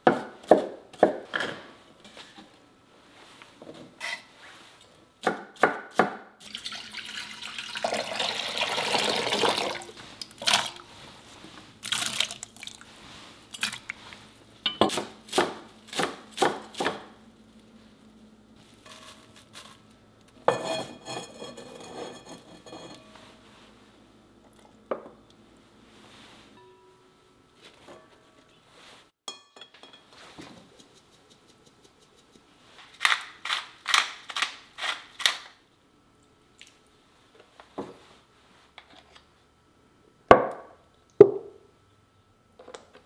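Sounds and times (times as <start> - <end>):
water pouring: 6.4 - 10.8, 11.8 - 12.9.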